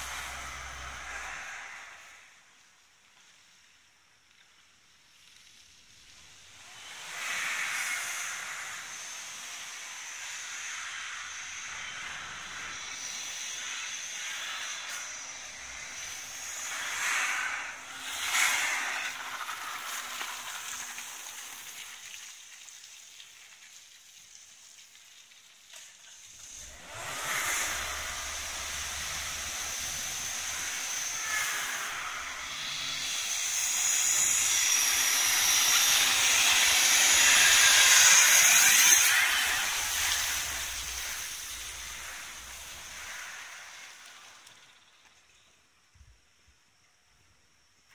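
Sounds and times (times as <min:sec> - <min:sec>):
car engine running hard: 0:00.0 - 0:02.2, 0:26.4 - 0:44.4
tyres spinning and spraying mud: 0:00.0 - 0:03.5, 0:04.4 - 0:45.1.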